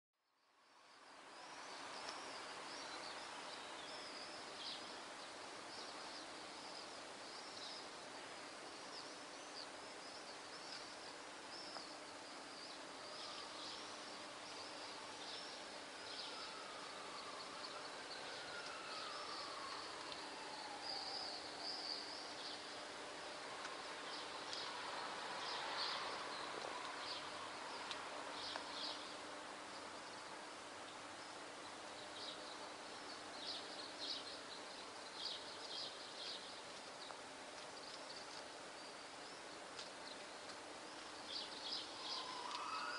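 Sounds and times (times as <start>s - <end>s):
faint falling whine: 0.3s - 42.9s
swallows twittering: 41.2s - 42.9s.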